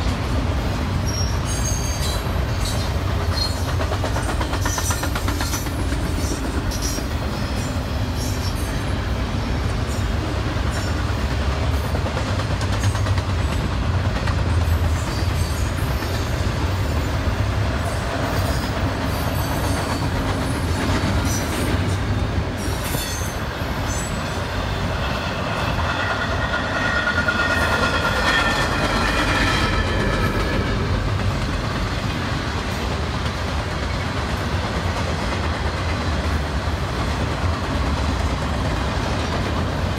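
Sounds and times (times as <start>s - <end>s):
freight train rumbling past: 0.0s - 39.9s
high wheel squeal: 1.0s - 3.7s, 25.0s - 30.8s
wheels clicking over rail joints: 1.0s - 8.8s, 9.8s - 39.9s.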